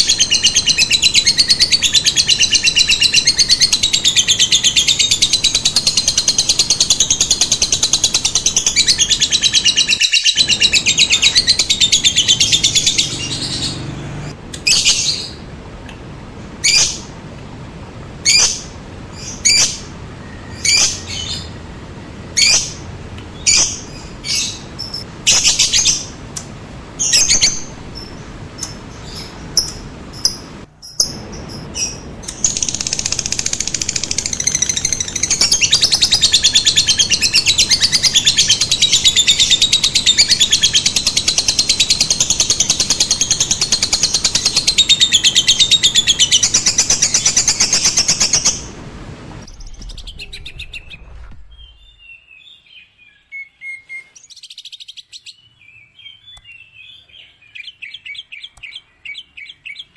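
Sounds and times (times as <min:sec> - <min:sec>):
lovebird chattering trill: 0:00.0 - 0:13.9, 0:27.0 - 0:48.8
steady low noise: 0:10.4 - 0:43.7, 0:46.9 - 0:52.3
soft bird chirps: 0:49.4 - 0:59.9.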